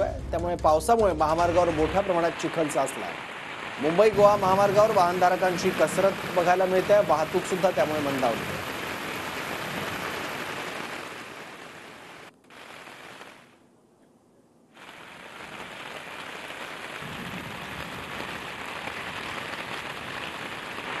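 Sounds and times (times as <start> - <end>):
rain falling: 0.1 - 13.6, 14.7 - 21.0.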